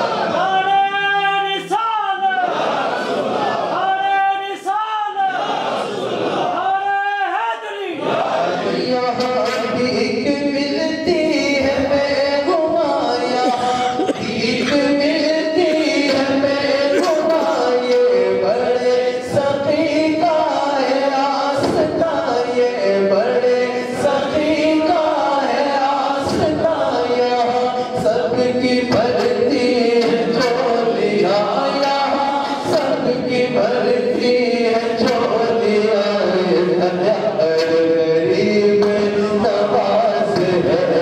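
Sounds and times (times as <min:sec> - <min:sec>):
man singing into a microphone: 0:08.7 - 0:41.0.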